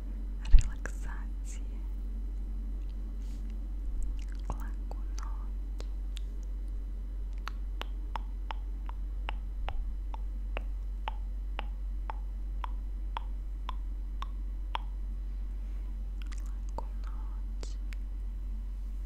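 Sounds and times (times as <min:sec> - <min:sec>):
low electrical hum: 0:00.0 - 0:19.0
wet mouth clicks: 0:04.0 - 0:06.6, 0:07.3 - 0:14.9, 0:16.2 - 0:18.0.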